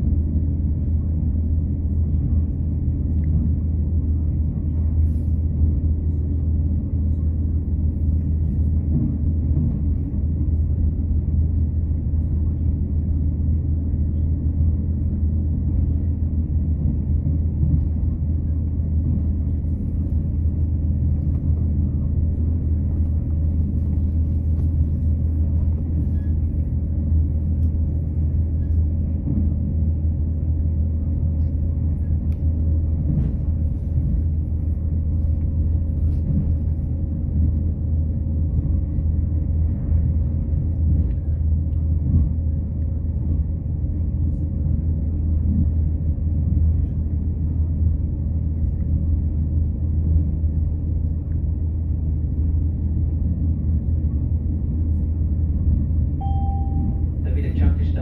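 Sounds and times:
diesel train rumbling: 0.0 - 58.0
faint high whine: 56.1 - 57.9.

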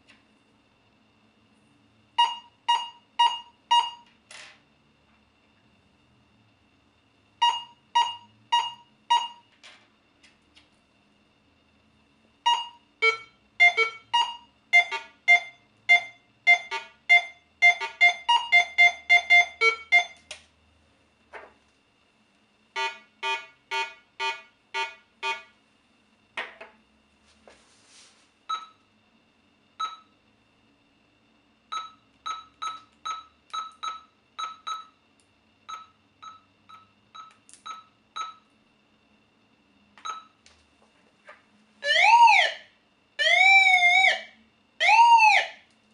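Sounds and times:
metal detector beeps: 2.2 - 4.1, 7.4 - 9.4, 12.5 - 20.2, 35.7 - 38.4, 40.0 - 40.4.

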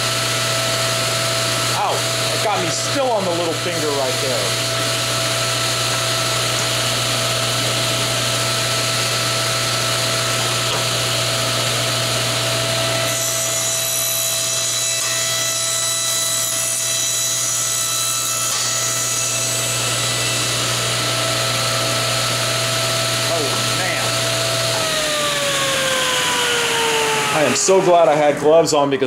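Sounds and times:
table saw motor running: 0.0 - 29.0
saw blade cutting wood: 1.4 - 28.4.

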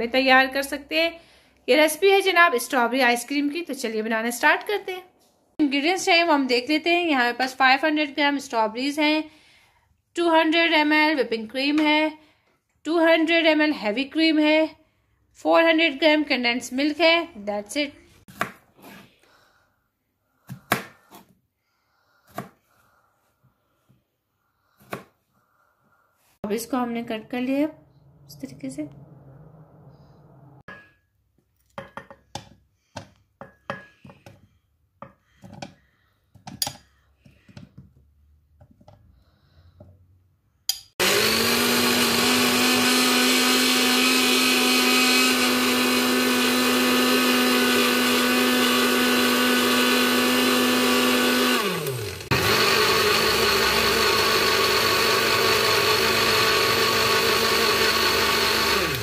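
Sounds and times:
blender motor running: 41.0 - 59.0.

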